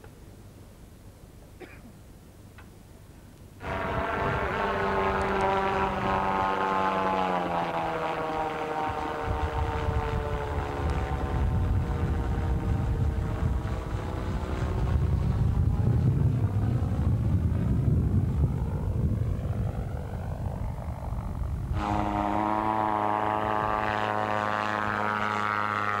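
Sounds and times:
gyrocopter engine and propeller drone: 0:03.6 - 0:26.0.

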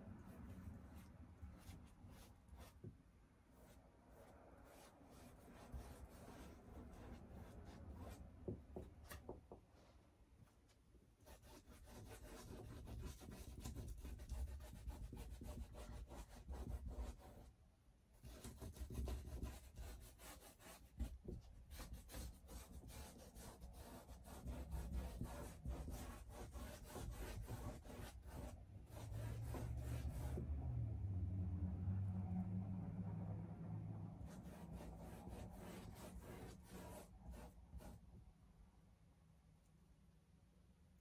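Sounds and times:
paintbrush scrubbing on canvas: 0:00.1 - 0:08.3, 0:18.2 - 0:30.5, 0:34.2 - 0:38.1.

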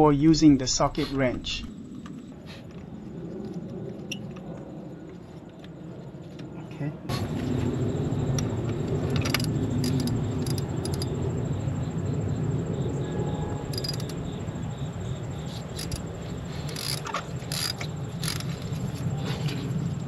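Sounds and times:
steady low rumble: 0:00.0 - 0:20.0
ratchet wrench clicking: 0:09.2 - 0:11.1, 0:13.7 - 0:14.2, 0:15.7 - 0:18.6.

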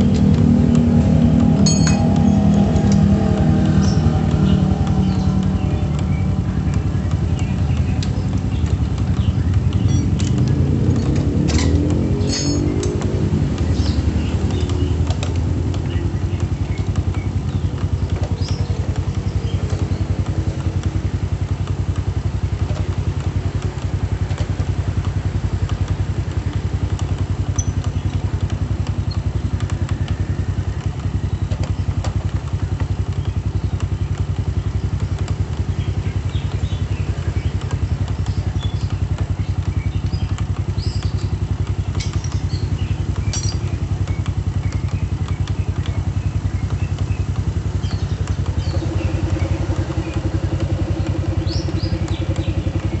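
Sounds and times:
motorcycle engine idling: 0:00.0 - 0:53.0.

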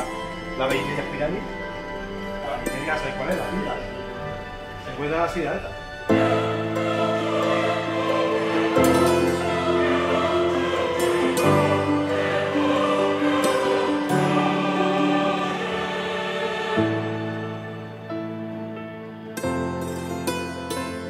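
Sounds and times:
choir-like singing over held chords: 0:00.0 - 0:21.0.

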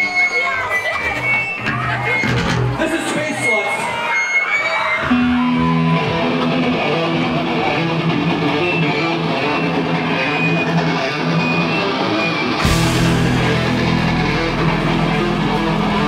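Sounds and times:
electric guitar ringing chords: 0:05.0 - 0:16.0
steady low bass note: 0:12.6 - 0:16.0.

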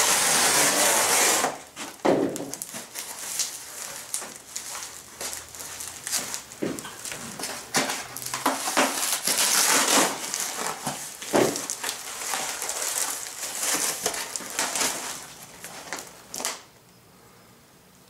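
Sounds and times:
plastic packaging being torn open: 0:02.3 - 0:16.7.

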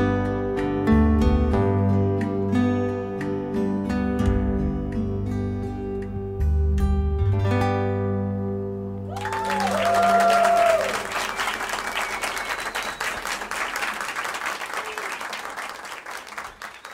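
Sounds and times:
audience applause: 0:09.1 - 0:16.9.

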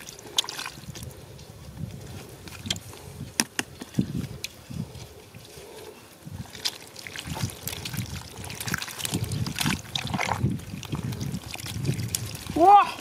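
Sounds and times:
water splashing: 0:00.0 - 0:01.4, 0:06.2 - 0:13.0
water trickling: 0:00.0 - 0:02.8, 0:03.9 - 0:13.0
hands squelching in mud: 0:00.0 - 0:13.0.

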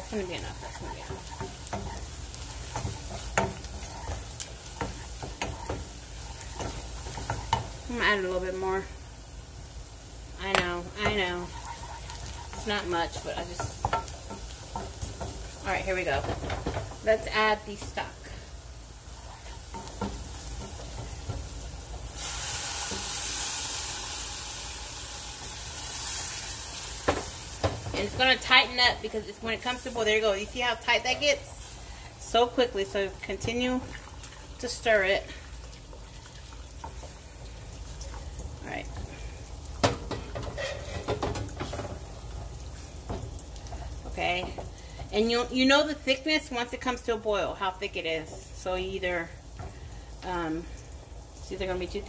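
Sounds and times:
wooden spoon scraping a pan: 0:00.0 - 0:08.6, 0:10.4 - 0:23.2, 0:39.9 - 0:45.6
steady sizzle: 0:00.0 - 0:52.0.

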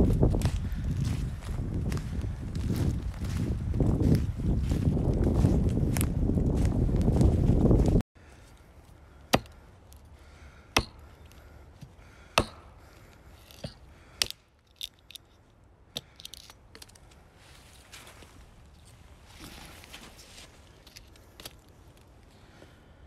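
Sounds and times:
knife chopping tree trunk: 0:09.3 - 0:09.6, 0:10.7 - 0:11.1, 0:11.8 - 0:12.8, 0:13.5 - 0:14.4.

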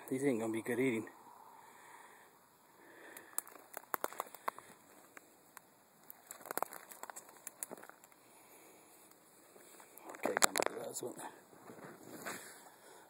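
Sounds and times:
rustling and crackling handling noise: 0:03.2 - 0:08.3, 0:09.0 - 0:12.7.

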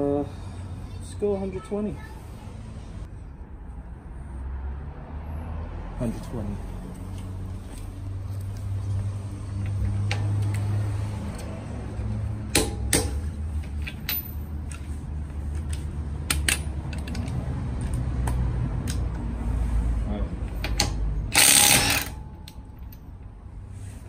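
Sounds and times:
torque wrench clicks: 0:20.6 - 0:22.2.

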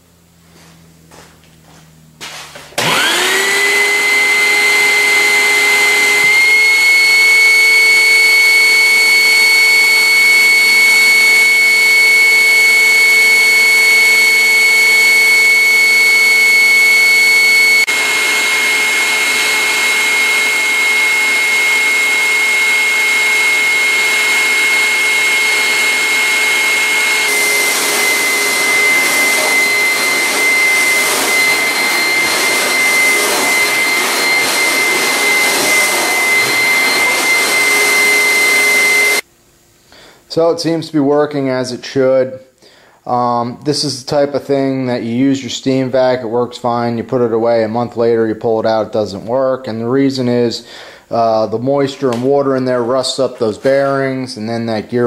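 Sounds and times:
carpet cleaner motor whine: 0:00.3 - 0:39.3.

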